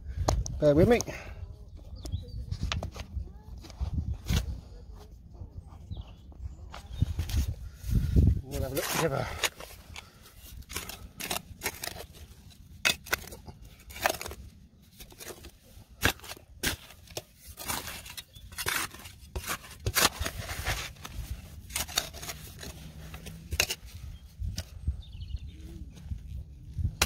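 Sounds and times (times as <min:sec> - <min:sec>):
metal tool digging dry soil: 0:06.7 - 0:27.0.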